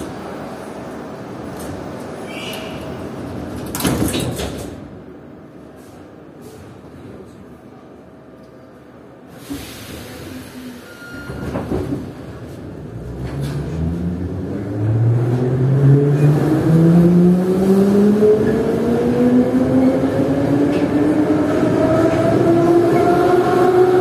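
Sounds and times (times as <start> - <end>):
train jolt: 9.4 - 13.8.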